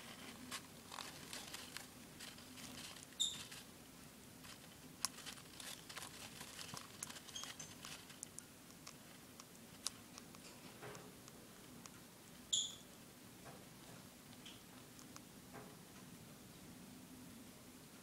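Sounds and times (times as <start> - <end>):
soft rustling: 0.0 - 10.8
baby bird squeaks: 3.2 - 3.5.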